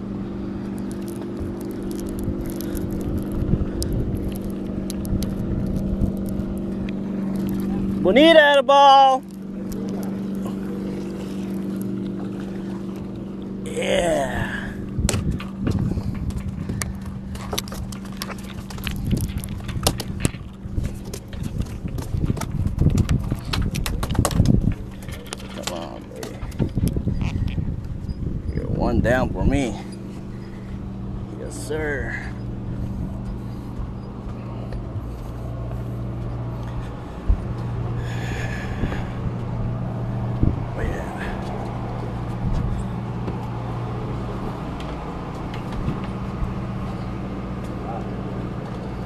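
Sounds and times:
boat engine hum: 0:00.0 - 0:49.0.

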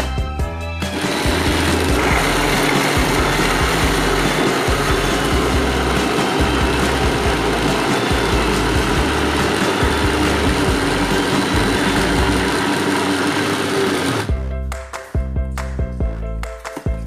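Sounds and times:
background music: 0:00.0 - 0:17.0
blender grinding meat: 0:00.8 - 0:14.4.

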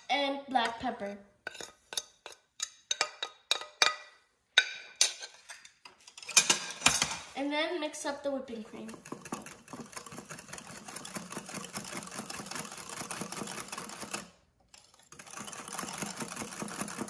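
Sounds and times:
wire whisk clattering against bowl: 0:08.8 - 0:14.2.

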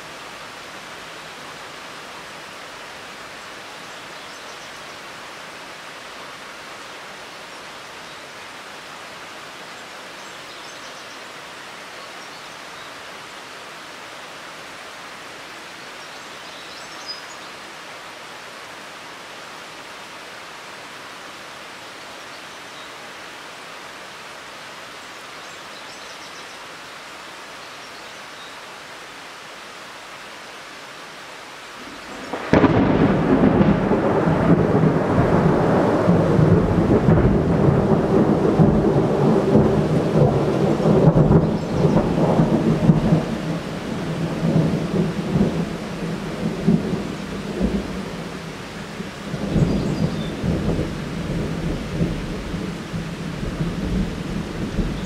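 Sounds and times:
rain hiss: 0:00.0 - 0:55.0
thunderclap and rumbling thunder: 0:32.2 - 0:48.3.

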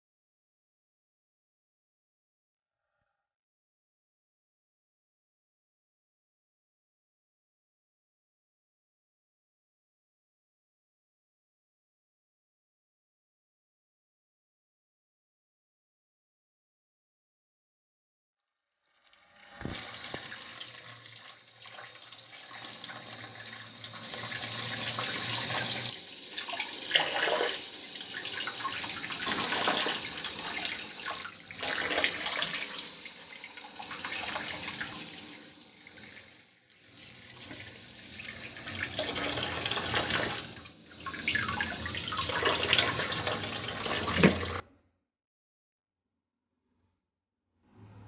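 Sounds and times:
tap water running into bowl: 0:19.5 - 0:44.6.

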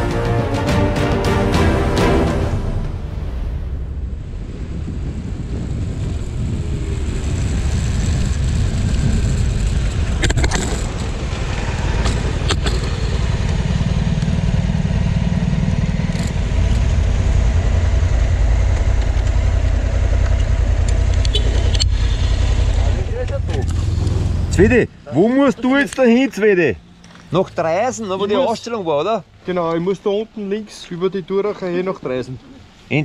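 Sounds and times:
motorcycle engine rumbling: 0:02.7 - 0:29.4.

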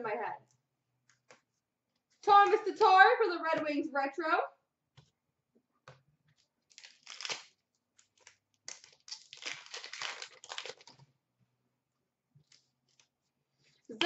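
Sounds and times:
wrapper crinkling and tearing: 0:06.7 - 0:11.0.

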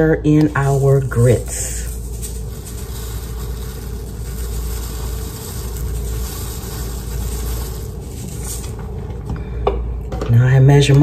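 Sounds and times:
steady low rumble: 0:00.0 - 0:10.1
grits poured into saucepan: 0:00.6 - 0:08.9
whisk stirring in saucepan: 0:00.6 - 0:09.0.

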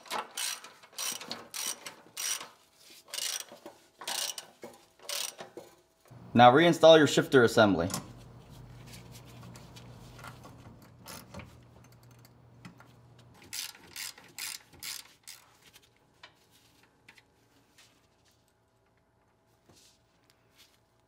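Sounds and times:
hand ratchet clicking: 0:00.0 - 0:05.7, 0:13.4 - 0:15.5.

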